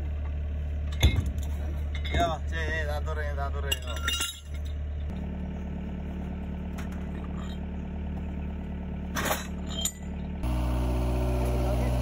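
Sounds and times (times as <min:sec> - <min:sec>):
metallic clank: 0:03.7 - 0:04.8, 0:09.1 - 0:10.2
diesel engine idling: 0:04.7 - 0:12.0.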